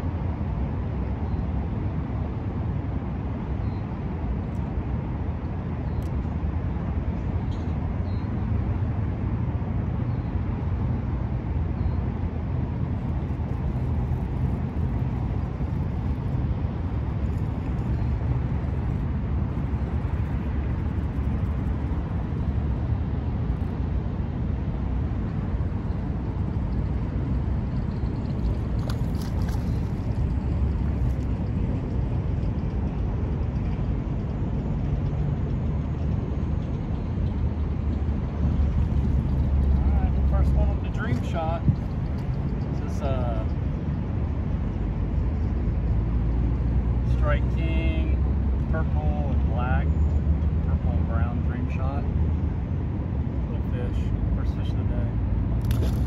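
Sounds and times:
highway traffic hum: 0.0 - 56.0.

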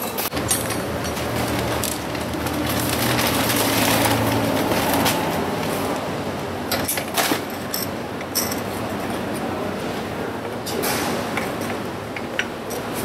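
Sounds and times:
street traffic noise: 0.0 - 13.0.

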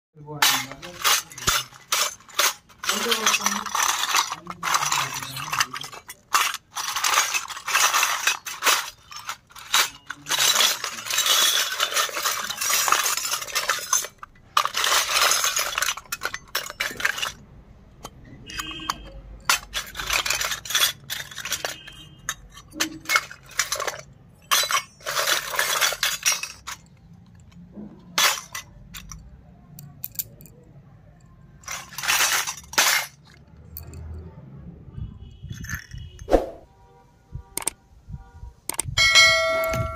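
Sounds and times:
toy metal pots clinking: 0.2 - 34.3, 37.6 - 37.8, 38.7 - 39.9
steel cup ringing: 39.0 - 39.9.

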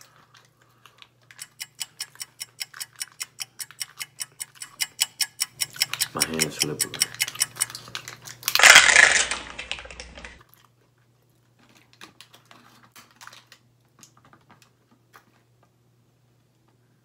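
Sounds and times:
plastic packet crinkling and tearing: 7.7 - 10.7, 11.6 - 14.2.

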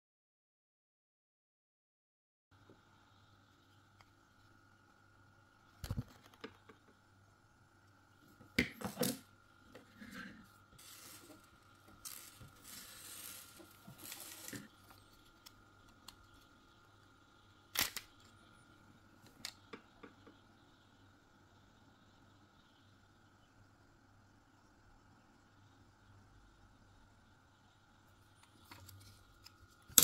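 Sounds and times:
hands rubbing and rustling parts: 9.8 - 16.5.

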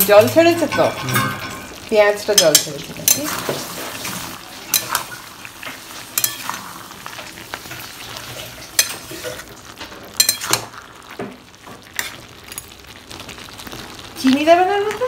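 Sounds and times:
curry sizzling in a pan: 0.0 - 15.0
metal spatula scraping a pan: 2.4 - 9.5.

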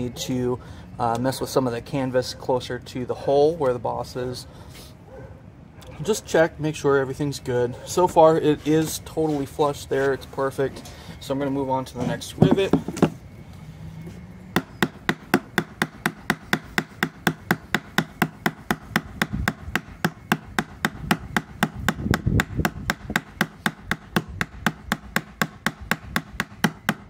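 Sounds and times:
small hammer striking rivet: 14.6 - 27.0.

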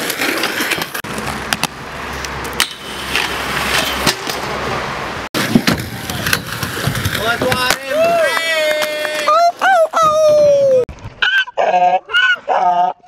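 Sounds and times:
skate wheels rolling on asphalt: 0.0 - 10.8
skates clacking: 5.4 - 10.2.

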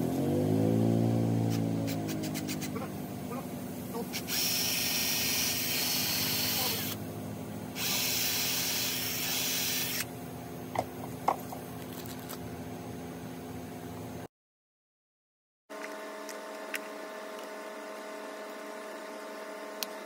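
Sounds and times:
cordless drill into wood: 4.2 - 7.0, 7.8 - 10.1.

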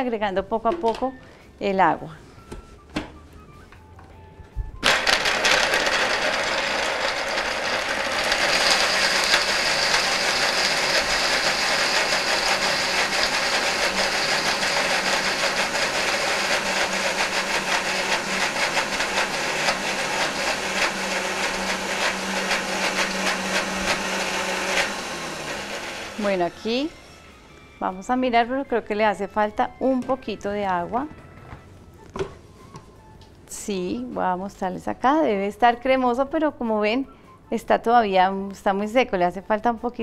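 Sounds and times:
blender running: 4.8 - 27.7.

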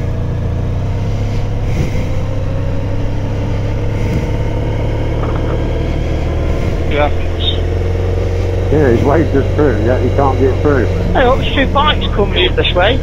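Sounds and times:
motorcycle engine rumbling: 0.0 - 13.0.

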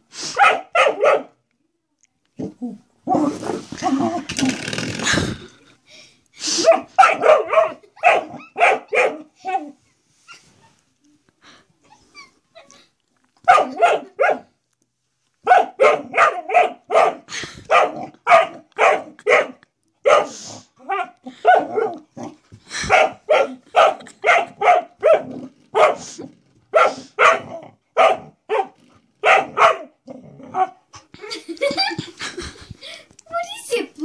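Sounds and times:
dog barking: 0.4 - 1.4, 6.6 - 9.8, 13.5 - 14.5, 15.4 - 22.0, 22.9 - 30.0.

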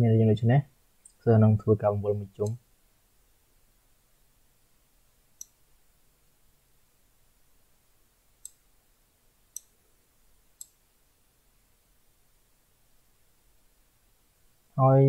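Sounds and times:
computer mouse clicks: 5.4 - 5.6, 8.4 - 8.6, 10.6 - 10.8.

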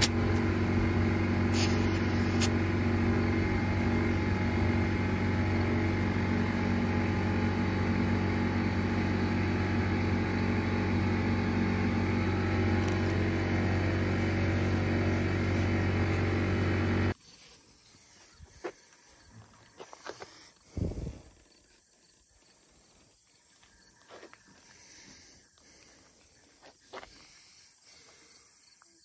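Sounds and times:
air compressor motor hum: 0.0 - 17.2.

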